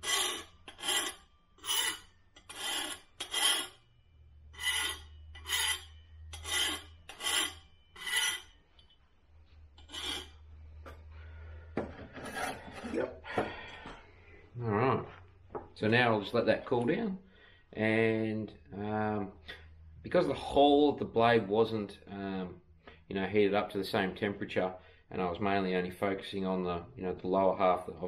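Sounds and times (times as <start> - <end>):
file scraping steel blade: 0.0 - 3.9, 4.5 - 8.9, 9.8 - 10.5, 12.0 - 13.1.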